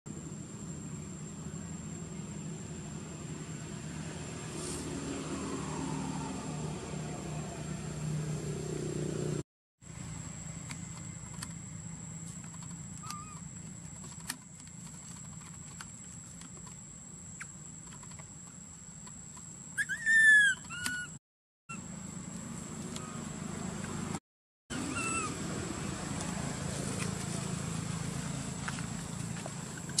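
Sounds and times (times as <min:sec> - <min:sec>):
scattered clicks: 0:12.3 - 0:16.8, 0:17.4 - 0:19.5
macaque squealing: 0:13.0 - 0:13.4, 0:19.8 - 0:21.2, 0:24.7 - 0:25.4.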